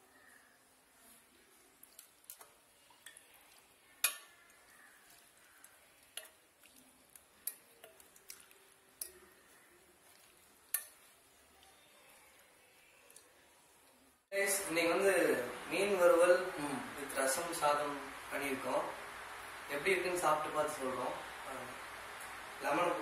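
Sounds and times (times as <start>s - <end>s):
metal ladle clinking on pot: 4.0s - 4.5s.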